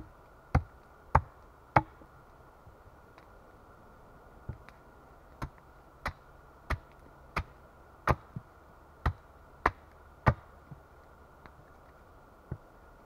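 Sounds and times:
hatchet chopping wood: 0.5s - 2.0s, 5.4s - 8.4s, 9.0s - 10.5s.

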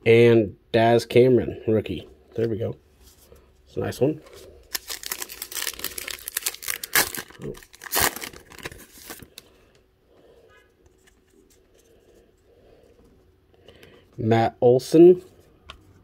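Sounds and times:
faint handling of cards: 2.3s - 14.2s
wrapper torn open and crinkled: 4.7s - 9.4s.

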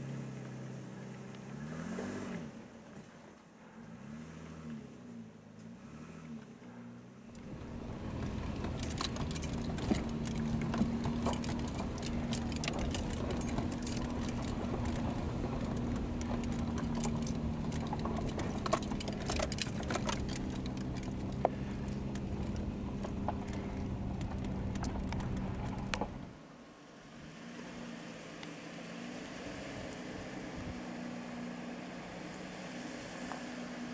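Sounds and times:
vehicle engine running: 0.0s - 26.4s, 27.0s - 33.9s
clicks knocks and rattles: 7.4s - 26.2s.

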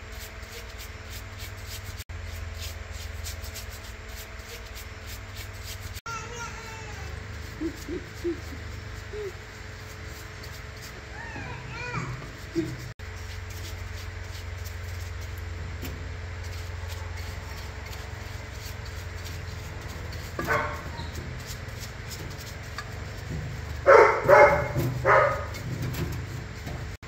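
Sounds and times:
brush scrubbing in solvent: 0.0s - 27.0s
steady low hum: 0.0s - 27.0s
dog barking: 20.4s - 21.1s, 23.8s - 25.6s.

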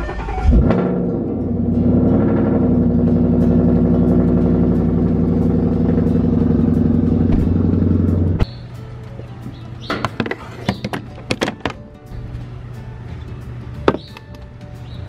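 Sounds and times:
car engine idling: 0.0s - 8.4s.

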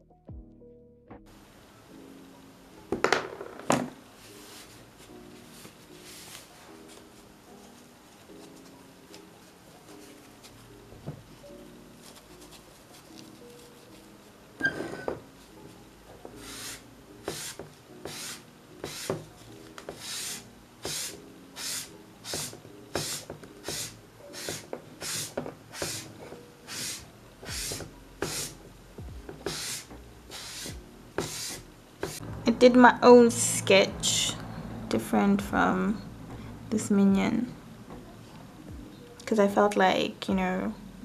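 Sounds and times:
dry paintbrush strokes on canvas: 4.2s - 10.8s, 16.3s - 28.6s, 29.4s - 32.2s.

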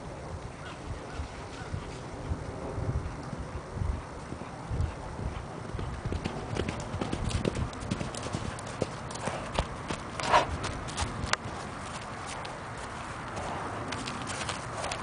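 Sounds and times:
hoofbeats of galloping horse: 0.6s - 15.0s.

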